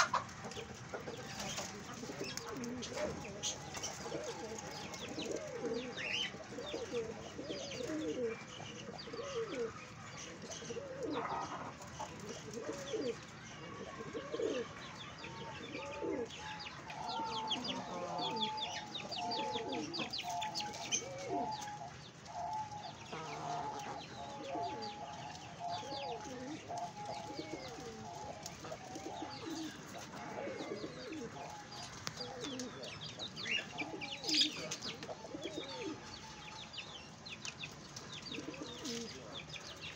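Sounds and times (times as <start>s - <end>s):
pigeons cooing: 0.0s - 39.9s.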